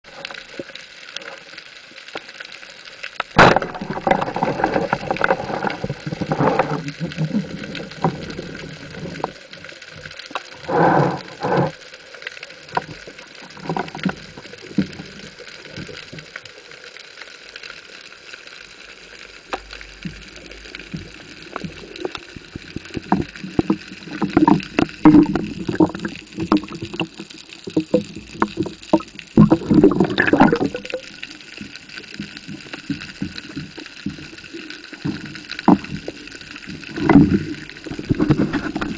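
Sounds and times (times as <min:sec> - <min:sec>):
knocks and scraping underwater: 0:00.0 - 0:38.9
speargun firing underwater: 0:03.4 - 0:04.3.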